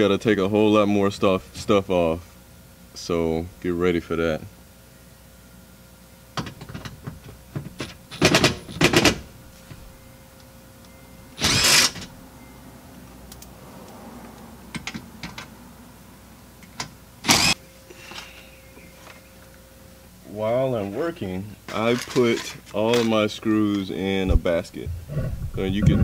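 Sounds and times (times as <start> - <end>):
impact driver rattling: 7.6 - 9.3, 11.4 - 12.1, 17.2 - 17.6.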